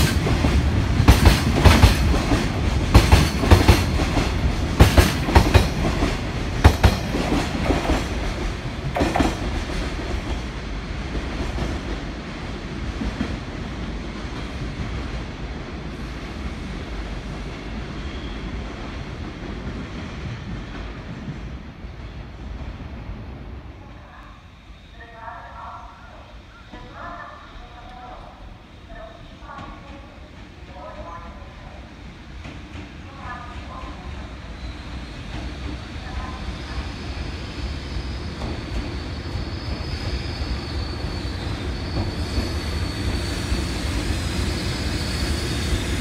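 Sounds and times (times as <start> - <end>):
train wheels clicking over rail joints: 0.0 - 10.4
train rumble: 0.0 - 24.4.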